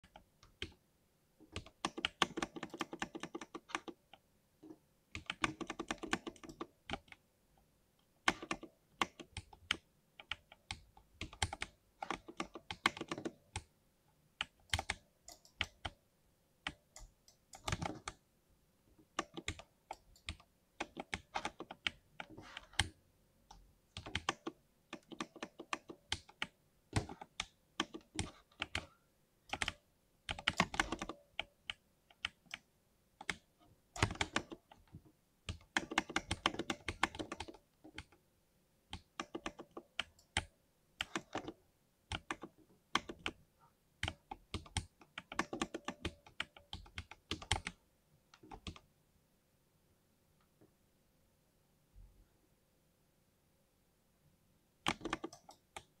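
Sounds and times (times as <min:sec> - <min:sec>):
mechanical keyboard typing: 0:01.5 - 0:04.1, 0:05.1 - 0:07.2, 0:08.2 - 0:13.7, 0:14.4 - 0:16.0, 0:16.6 - 0:18.2, 0:19.1 - 0:23.0, 0:24.0 - 0:28.9, 0:29.5 - 0:32.6, 0:33.2 - 0:34.9, 0:35.5 - 0:38.2, 0:38.9 - 0:43.4, 0:44.0 - 0:47.8, 0:48.4 - 0:48.8, 0:54.8 - 0:56.0.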